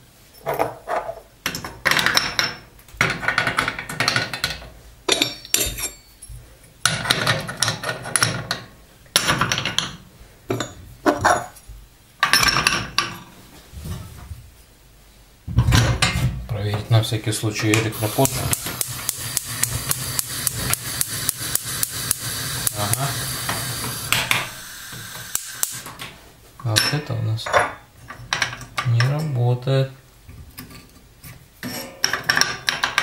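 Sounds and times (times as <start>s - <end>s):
metal burner caps clinking: 5.1s - 6.1s.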